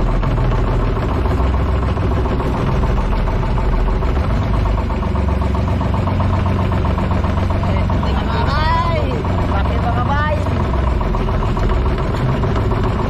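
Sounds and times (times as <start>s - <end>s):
boat engine running steadily: 0.0s - 13.0s.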